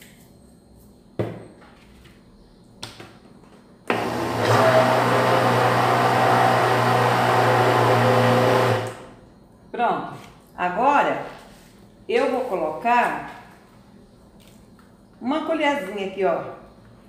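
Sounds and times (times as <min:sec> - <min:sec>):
blender running: 0:03.9 - 0:09.1.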